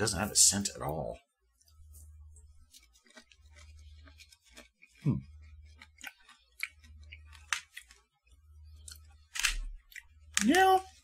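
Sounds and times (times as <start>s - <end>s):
low steady hum: 0.0s - 11.0s
person crunching hard candies: 2.7s - 8.1s
person humming mm: 5.0s - 5.3s.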